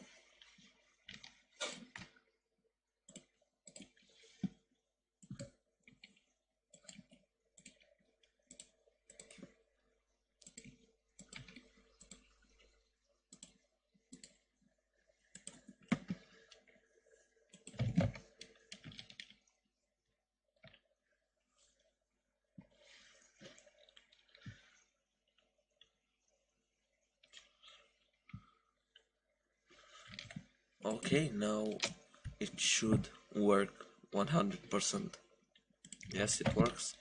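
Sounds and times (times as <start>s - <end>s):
keyboard typing: 10.4s - 12.3s, 17.5s - 19.4s.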